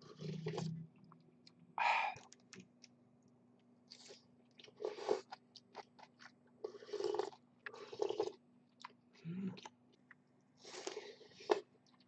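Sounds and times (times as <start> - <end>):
wet chewing: 3.6 - 9.0
person slurping noodles: 6.6 - 8.4.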